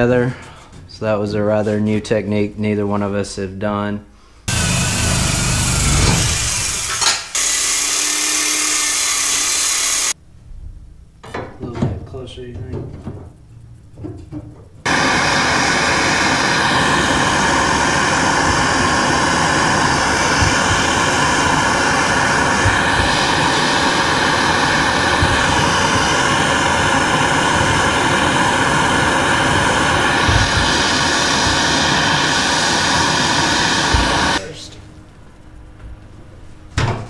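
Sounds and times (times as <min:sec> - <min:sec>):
gas torch hissing: 0:04.5 - 0:10.2, 0:14.8 - 0:34.6.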